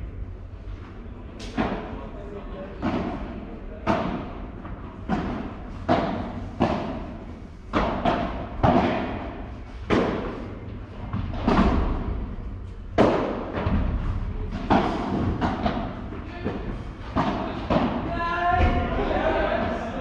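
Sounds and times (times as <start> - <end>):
ball hits echoing: 7.7 - 10.5, 13.0 - 19.8.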